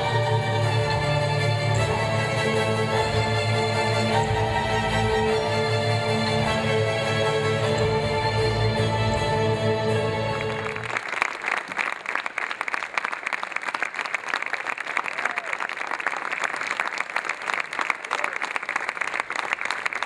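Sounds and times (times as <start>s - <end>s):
music with long held tones: 0.0s - 11.1s
audience clapping: 10.2s - 20.0s.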